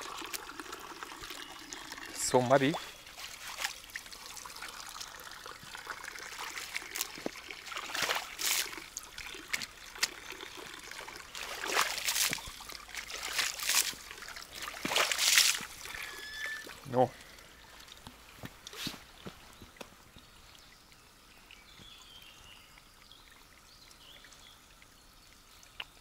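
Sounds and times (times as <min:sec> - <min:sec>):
trickle of running water: 0:00.0 - 0:26.0
shoes splashing in water: 0:02.7 - 0:04.6, 0:05.6 - 0:16.1.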